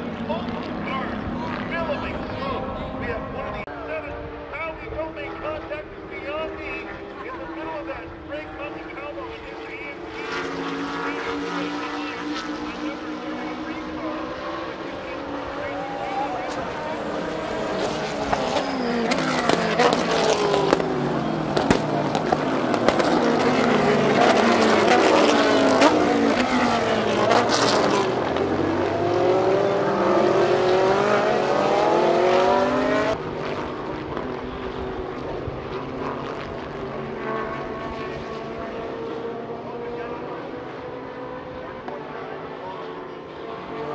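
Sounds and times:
race car engines accelerating: 0:00.0 - 0:43.9.

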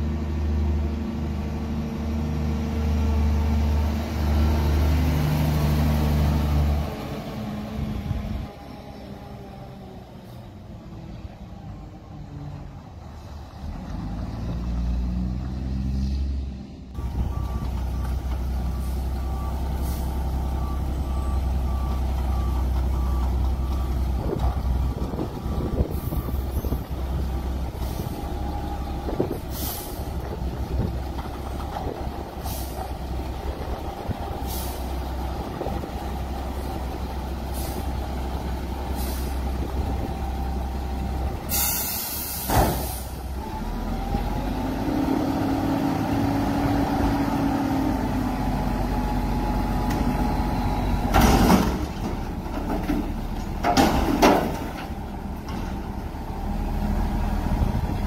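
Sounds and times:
diesel engine running: 0:16.7 - 0:58.0
reversing beeper: 0:17.0 - 0:26.9
short air hisses: 0:29.5 - 0:30.0, 0:39.0 - 0:39.4, 0:41.5 - 0:43.2
air brake hiss: 0:29.5 - 0:30.1, 0:34.4 - 0:34.9, 0:37.5 - 0:37.9, 0:38.9 - 0:39.4, 0:41.5 - 0:43.2.

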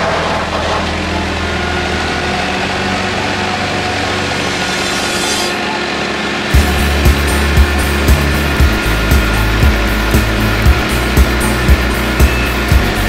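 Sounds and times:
tracked loader engine: 0:00.0 - 0:13.0
wood chipper running: 0:00.0 - 0:13.0.

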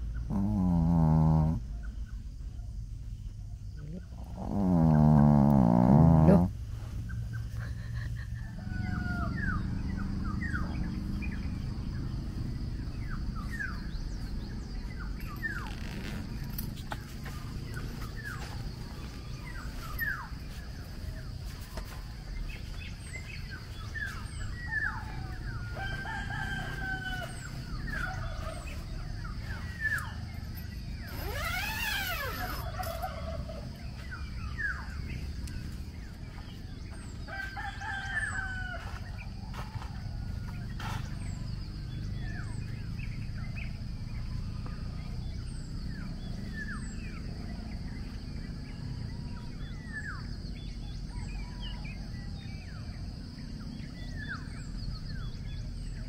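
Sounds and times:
birds chirping: 0:00.0 - 0:56.0
rooster crowing: 0:08.4 - 0:10.0, 0:24.8 - 0:29.2, 0:31.1 - 0:34.0, 0:37.2 - 0:40.5.

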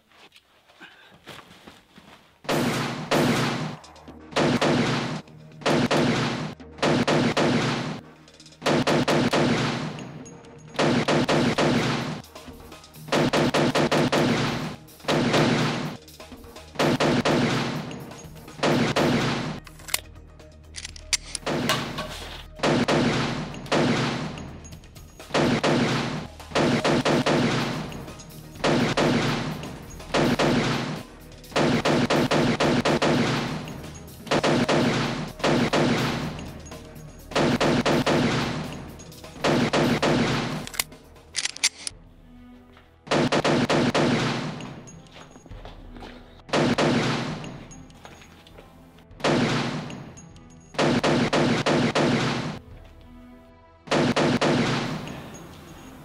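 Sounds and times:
rapid gunfire bursts: 0:02.5 - 0:08.0, 0:08.6 - 0:10.0, 0:10.8 - 0:12.2, 0:13.0 - 0:16.0, 0:16.7 - 0:18.0, 0:18.6 - 0:19.6, 0:22.6 - 0:24.4, 0:25.3 - 0:28.0, 0:28.6 - 0:36.5, 0:37.3 - 0:40.6, 0:43.1 - 0:44.6, 0:46.5 - 0:47.4, 0:50.8 - 0:52.6, 0:53.9 - 0:55.3.

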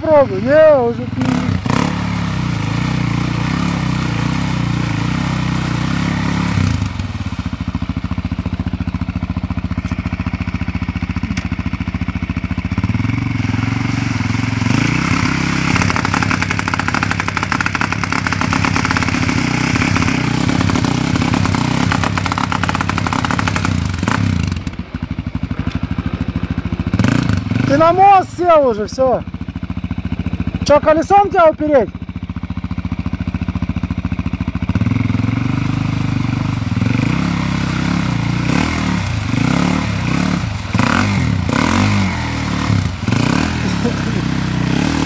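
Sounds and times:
quad engine revving: 0:00.0 - 0:32.0, 0:32.8 - 0:45.0
wheels spinning in mud: 0:12.5 - 0:24.8, 0:34.3 - 0:45.0.

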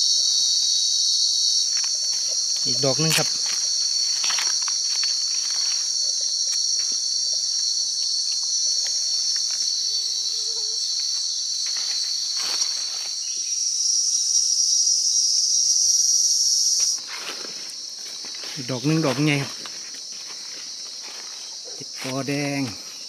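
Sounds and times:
insects chirring: 0:00.0 - 0:23.0
dry leaves rustling: 0:01.6 - 0:09.8, 0:11.0 - 0:13.4, 0:16.9 - 0:23.0.

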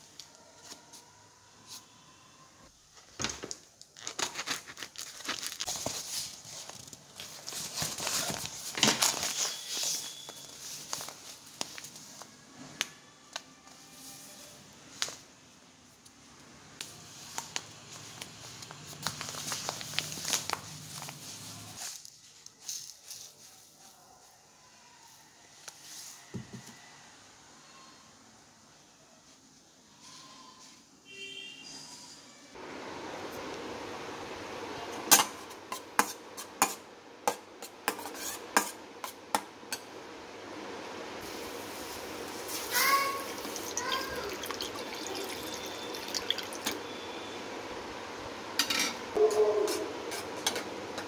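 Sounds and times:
plastic packet crinkling: 0:03.8 - 0:12.0, 0:18.7 - 0:21.7
dry grain pouring into plastic cup: 0:42.4 - 0:46.8.

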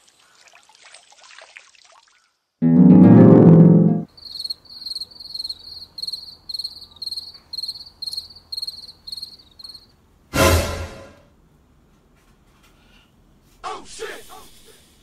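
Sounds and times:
loud music: 0:02.6 - 0:04.1
cricket chirping: 0:04.1 - 0:09.9.

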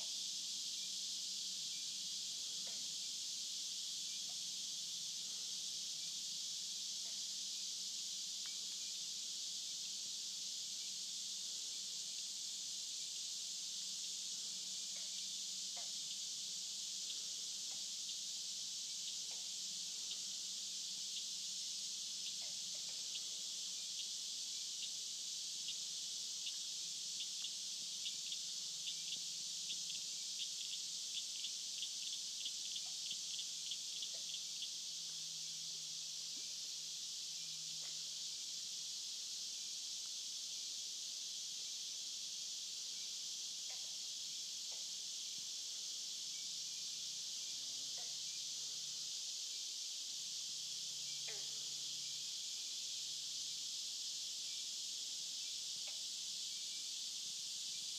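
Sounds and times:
high-pitched insect chorus: 0:00.0 - 0:57.9
rapid ticking calls: 0:26.4 - 0:34.8.

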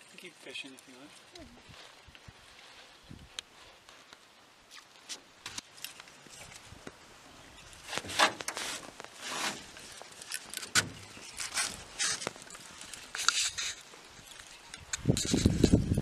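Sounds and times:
scattered clicks and rustles: 0:07.9 - 0:16.0.

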